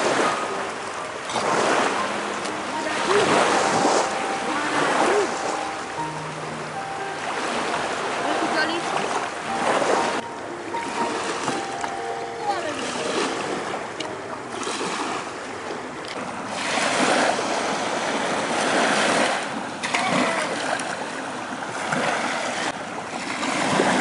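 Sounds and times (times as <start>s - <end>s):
waves washing against seawall: 0.0s - 6.0s, 12.6s - 24.0s.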